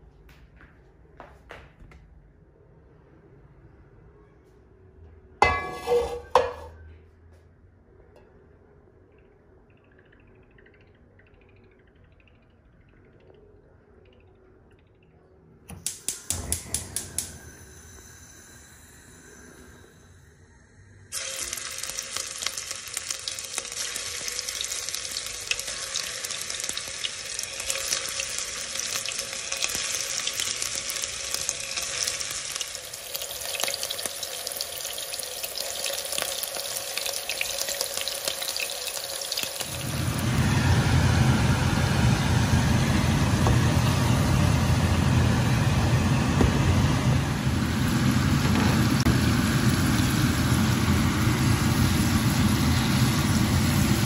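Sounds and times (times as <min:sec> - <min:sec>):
meatballs sizzling in oil: 0:21.2 - 0:40.4, 0:47.5 - 0:54.0.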